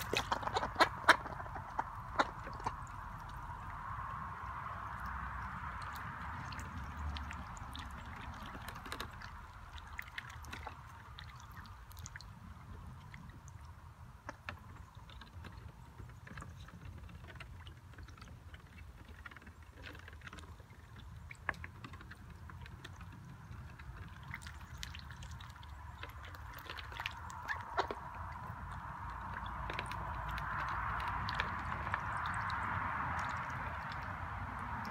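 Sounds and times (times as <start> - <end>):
ducks splashing in water: 0.0 - 34.9.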